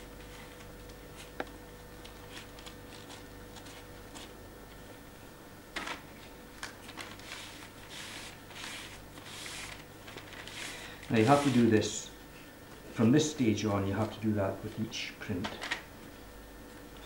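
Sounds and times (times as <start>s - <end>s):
faint steady hum: 0.0s - 17.0s
cloth rubbing on metal plate: 7.2s - 9.8s, 10.4s - 11.7s.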